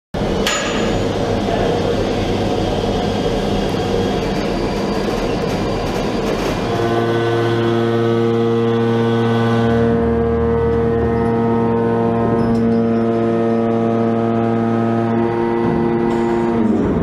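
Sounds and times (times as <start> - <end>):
helicopter running: 0.2 - 17.0
deep horn tone: 6.4 - 17.0.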